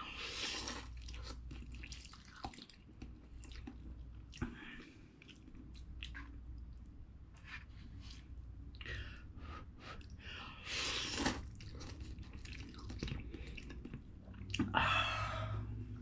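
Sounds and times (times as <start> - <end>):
slurping noodles: 0.1 - 2.6, 10.6 - 13.9
chewing: 0.4 - 6.4, 11.0 - 14.7.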